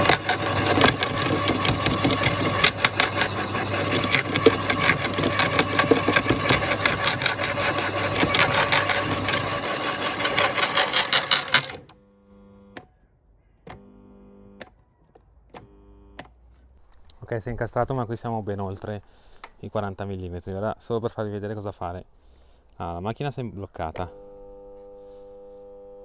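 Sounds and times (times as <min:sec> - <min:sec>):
garden shredder grinding branch: 0:00.0 - 0:12.8, 0:13.7 - 0:14.6, 0:15.6 - 0:17.2
faint hums and clicks: 0:00.0 - 0:12.9, 0:13.6 - 0:17.2, 0:23.9 - 0:26.0.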